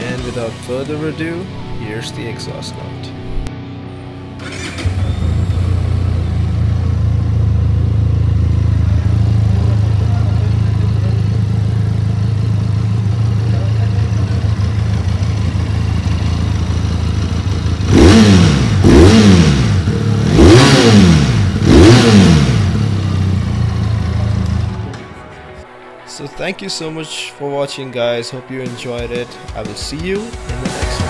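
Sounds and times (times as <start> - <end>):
motorcycle engine idling and revving: 4.2 - 25.4.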